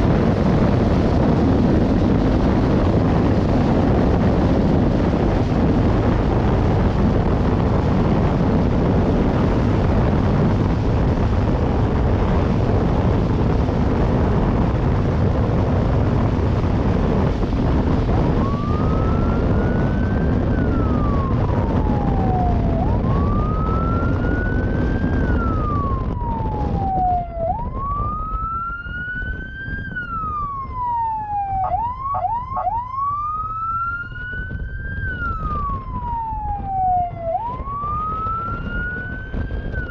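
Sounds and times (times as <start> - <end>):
strong wind and road rush: 0.0 - 39.9
police siren wailing: 15.0 - 39.9.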